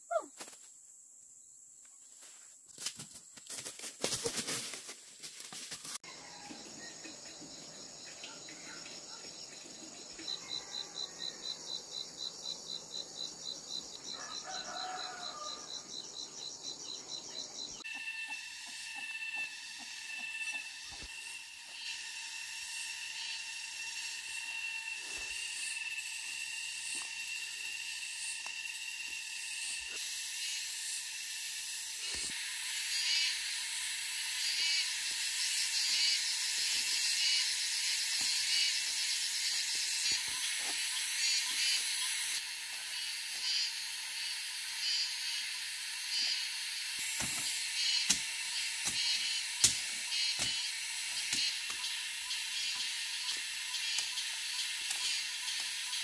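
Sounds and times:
insects buzzing: 0.0 - 56.0
footsteps on dry leaves: 2.1 - 6.0.

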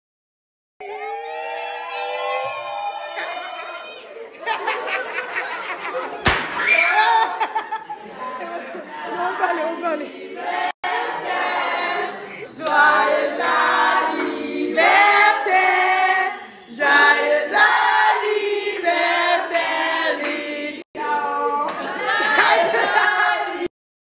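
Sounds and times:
voices singing in chorus: 7.9 - 23.7.

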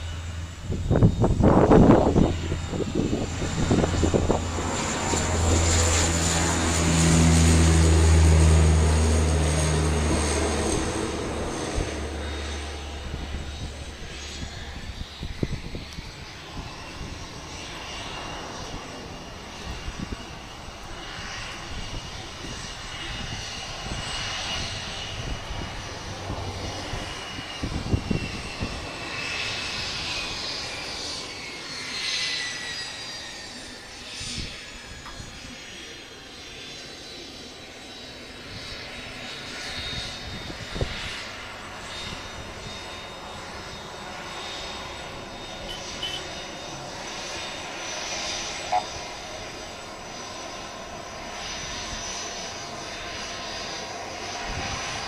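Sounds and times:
turboprop propellers droning: 0.0 - 55.0
high whine: 41.6 - 49.8.

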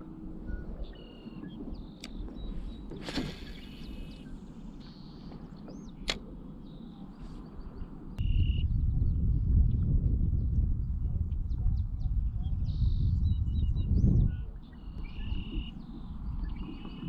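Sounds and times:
water rumble: 0.0 - 6.6, 14.4 - 17.0
low wind: 0.0 - 17.0
sharp clicks: 6.0 - 6.3.

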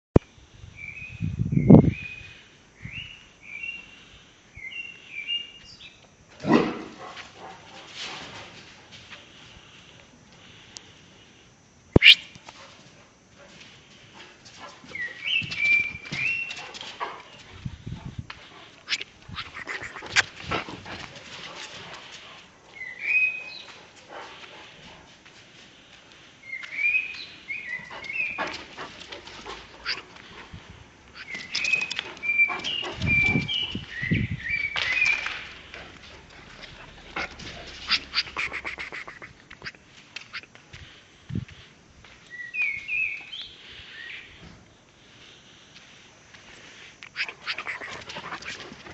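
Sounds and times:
dog whining: 47.1 - 48.9.

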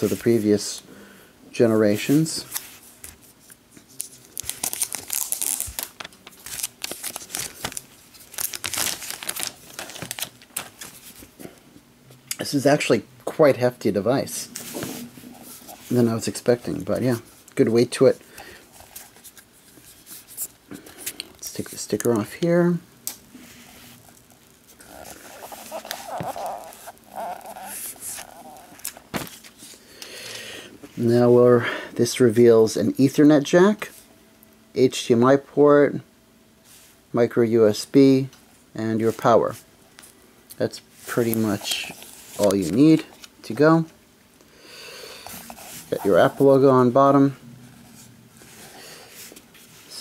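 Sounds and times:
plastic film peeling and crinkling: 3.8 - 11.4, 23.1 - 29.8.

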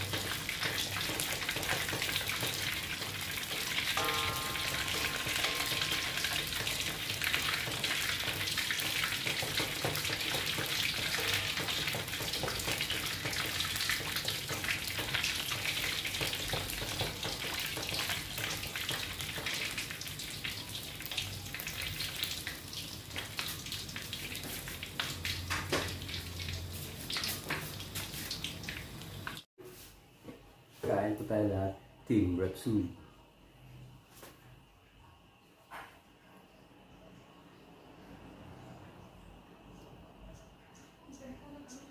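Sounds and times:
meat sizzling in oil: 0.0 - 29.4
oil crackles and pops: 5.9 - 29.4.

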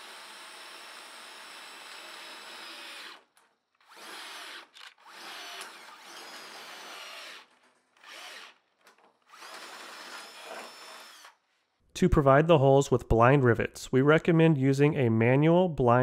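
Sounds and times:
power drill boring through steel: 0.0 - 8.6, 9.3 - 11.4.

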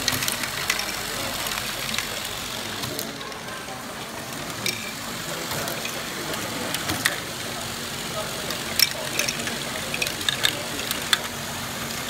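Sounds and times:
clicks of plastic balls: 0.0 - 3.5, 8.5 - 11.4
steady mechanical whirr: 0.0 - 12.0.

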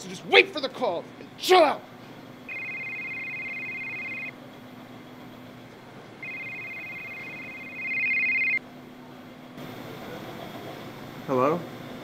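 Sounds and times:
phone ringing two-tone trill: 2.5 - 4.3, 6.2 - 8.6.

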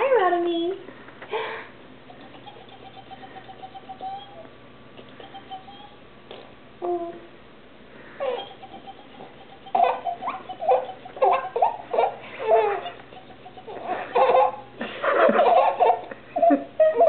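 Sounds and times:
baby giggling: 2.1 - 6.0, 8.2 - 17.0.

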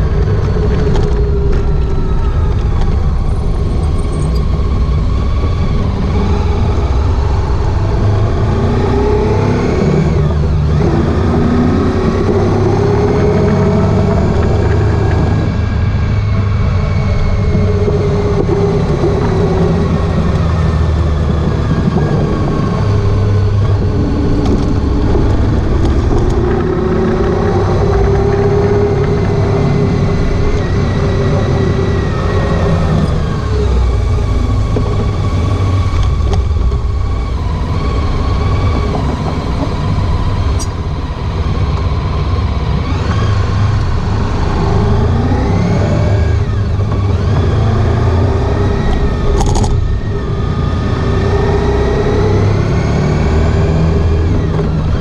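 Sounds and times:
motorcycle engine running: 0.0 - 55.0
road noise: 0.0 - 55.0
rushing wind: 0.0 - 55.0.

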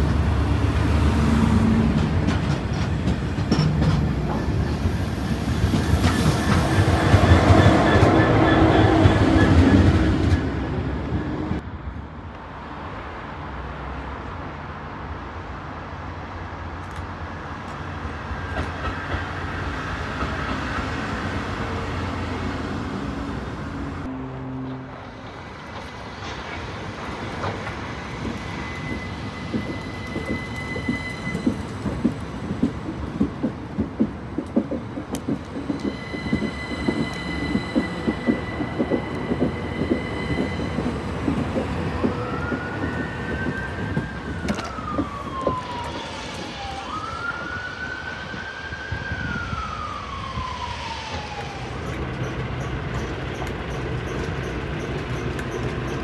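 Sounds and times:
train wheels clicking over rail joints: 0.0 - 10.5, 25.2 - 46.8, 51.1 - 56.0
siren wailing: 33.5 - 52.0.

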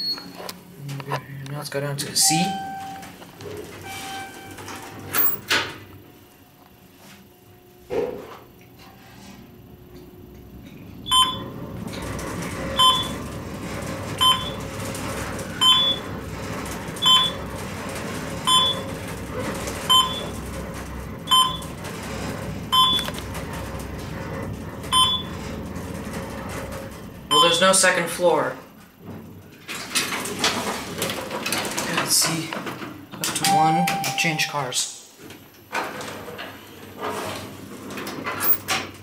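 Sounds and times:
elevator two-tone beep: 2.2 - 3.1, 3.8 - 5.4, 11.1 - 11.5, 12.8 - 13.2, 14.2 - 14.6, 15.6 - 16.1, 17.0 - 17.4, 18.5 - 18.9, 19.9 - 20.3, 21.3 - 21.7, 22.7 - 23.1, 24.9 - 25.4, 27.3 - 27.7, 33.4 - 34.5
elevator car hum and rumble: 2.2 - 6.1, 8.7 - 32.4.

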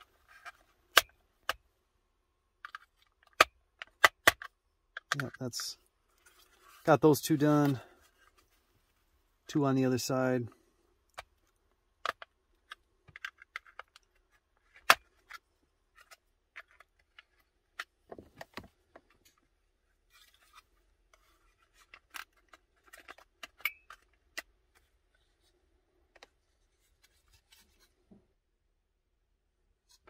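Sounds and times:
plastic clicks and snaps: 2.6 - 5.7.

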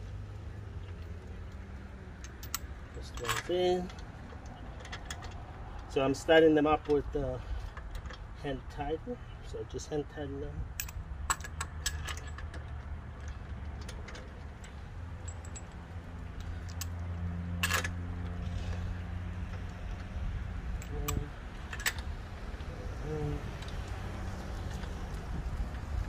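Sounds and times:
metal bolts clicking: 2.2 - 5.9, 10.7 - 17.0, 17.6 - 18.4, 20.8 - 22.1.

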